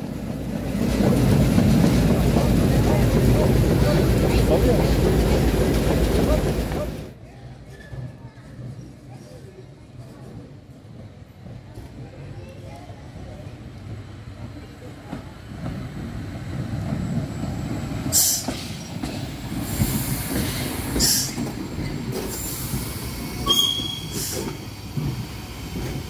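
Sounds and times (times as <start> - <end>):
locomotive running gear rumble: 0.1 - 7.2
high wheel squeals: 23.4 - 24.4.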